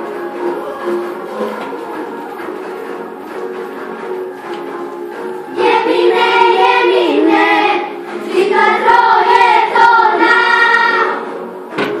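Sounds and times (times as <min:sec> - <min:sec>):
girls singing together: 0:05.4 - 0:12.0.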